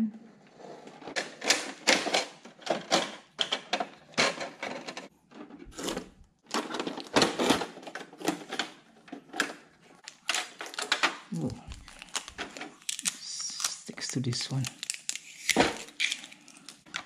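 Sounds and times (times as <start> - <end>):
plastic printer parts clicking and knocking: 1.0 - 11.3.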